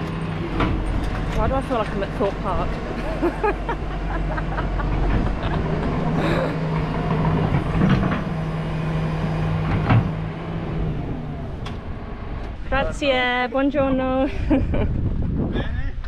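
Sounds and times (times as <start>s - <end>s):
tractor engine running: 0.0s - 14.2s.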